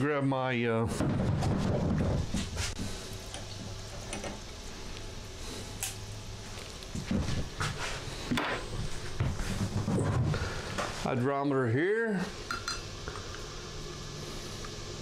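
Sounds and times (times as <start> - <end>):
low electrical hum: 0.0 - 15.0
objects knocking on workbench: 1.0 - 2.5.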